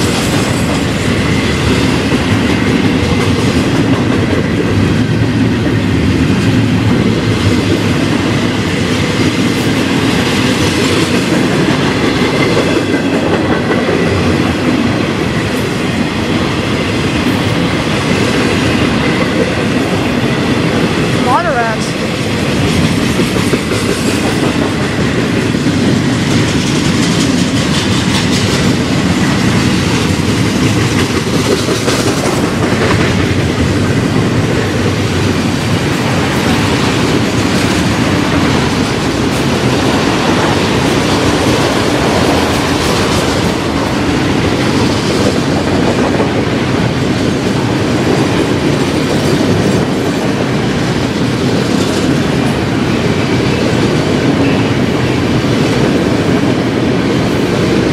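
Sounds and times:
freight train rolling past: 0:00.0 - 0:57.9
wheels clicking over rail joints: 0:22.4 - 0:57.9.

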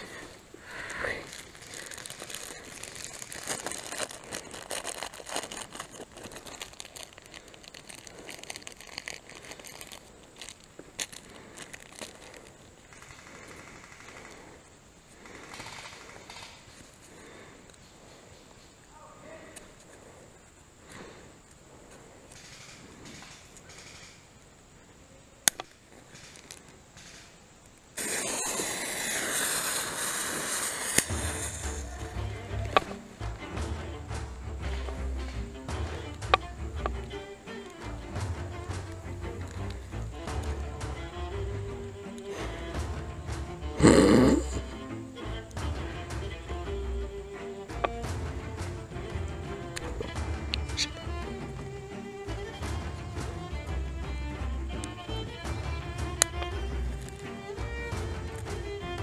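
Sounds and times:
pine needles crunching underfoot: 0:00.0 - 0:12.7, 0:28.4 - 0:33.0
sharp crack: 0:00.0 - 0:17.5, 0:22.3 - 0:24.4, 0:25.4 - 0:41.4
smoke grenade hissing: 0:00.0 - 0:18.8, 0:26.0 - 0:36.8, 0:39.3 - 0:51.4.

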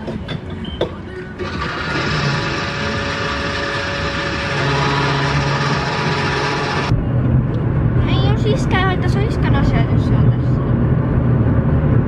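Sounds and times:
fuel pump humming: 0:01.4 - 0:06.9
fuel rushing: 0:01.4 - 0:07.2.

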